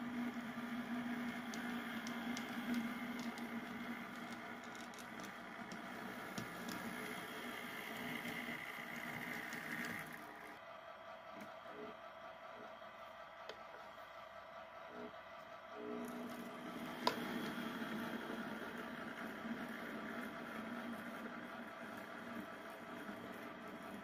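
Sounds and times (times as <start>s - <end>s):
wheels clicking on rails: 0.0s - 10.4s
model train motor hum: 0.0s - 10.6s, 15.0s - 24.0s.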